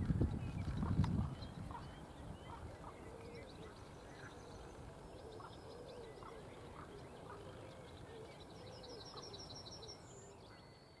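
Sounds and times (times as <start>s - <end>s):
outdoor background noise: 0.0s - 11.0s
songbirds singing: 0.0s - 11.0s.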